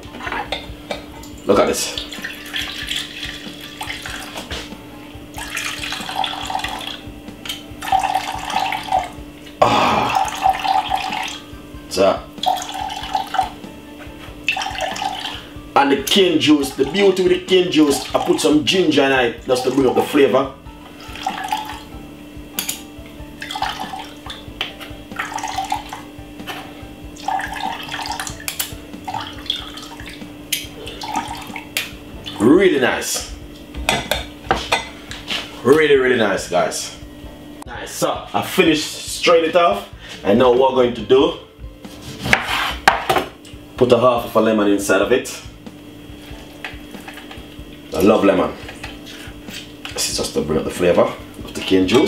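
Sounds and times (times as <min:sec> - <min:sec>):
faint steady hum: 0:00.0 - 0:42.0
juice trickling into a jug: 0:01.8 - 0:04.4, 0:05.3 - 0:07.1, 0:07.8 - 0:09.2, 0:10.0 - 0:11.4, 0:12.4 - 0:13.6, 0:14.5 - 0:15.5, 0:20.9 - 0:21.9, 0:23.4 - 0:24.3, 0:25.1 - 0:26.1, 0:27.2 - 0:28.4, 0:29.0 - 0:30.2, 0:30.8 - 0:31.7.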